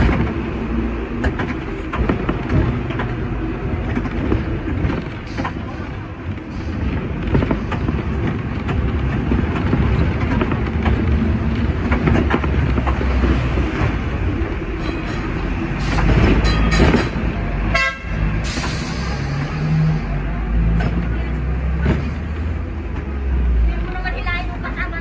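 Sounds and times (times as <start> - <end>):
city traffic: 0.0 - 25.0
tram rumbling on rails: 0.0 - 25.0
horn tooting: 16.3 - 18.6.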